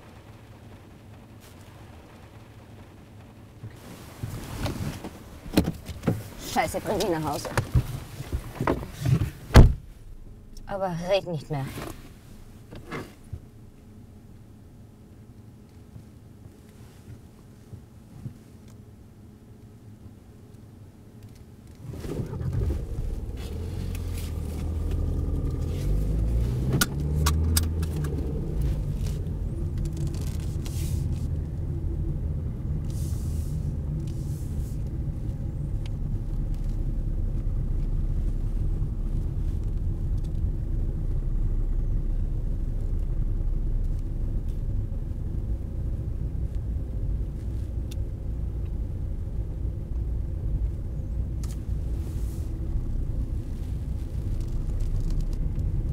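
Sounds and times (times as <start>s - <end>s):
road noise: 0.0s - 55.9s
car engine accelerating: 21.7s - 55.9s.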